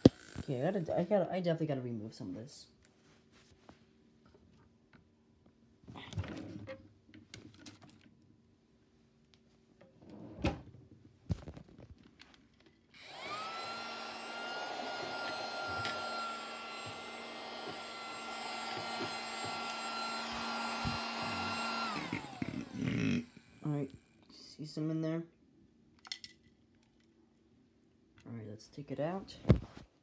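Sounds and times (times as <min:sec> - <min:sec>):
handheld vacuum cleaner motor whine: 0:13.0 - 0:24.2.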